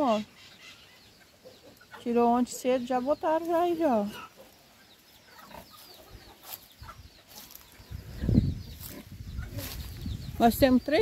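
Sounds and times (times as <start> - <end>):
chickens chirping: 0.0 - 11.0
low rumble on microphone: 7.8 - 11.0.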